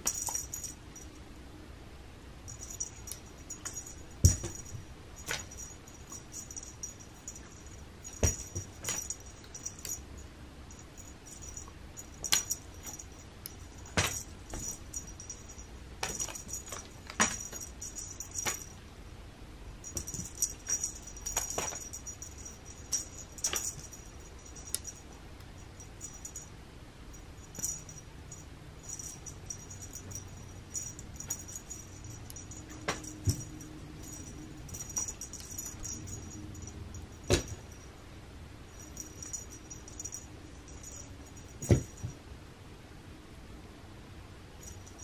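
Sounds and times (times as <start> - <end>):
toy tapping and rattling: 0.0 - 1.1, 2.5 - 10.0, 10.7 - 18.8, 19.8 - 25.0, 27.4 - 37.8, 38.8 - 42.1.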